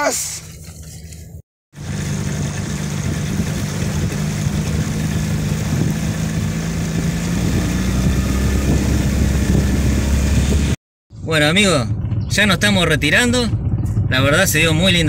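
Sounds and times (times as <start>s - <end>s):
boat engine droning: 1.8s - 10.8s.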